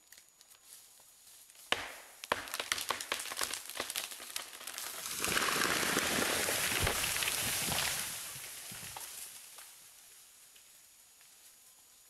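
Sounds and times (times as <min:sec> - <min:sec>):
wood cracking and splitting: 0:01.8 - 0:09.2
branches breaking and swishing: 0:02.5 - 0:09.4.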